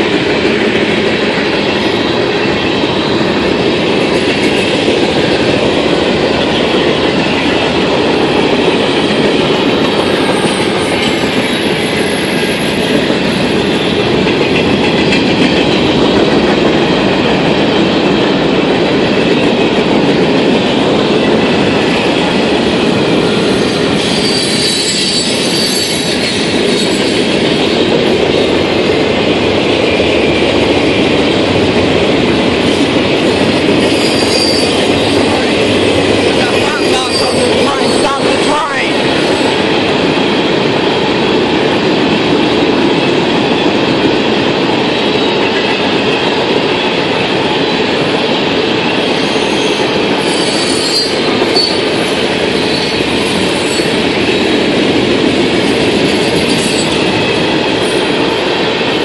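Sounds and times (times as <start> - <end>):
train wheels rumbling on rails: 0.0 - 59.0
high wheel squeal: 23.6 - 27.2, 33.8 - 35.2, 36.4 - 38.5, 49.2 - 51.9.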